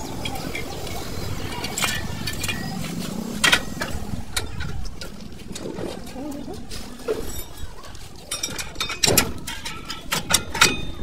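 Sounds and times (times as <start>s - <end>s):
metal brake parts clinking: 7.1s - 11.0s.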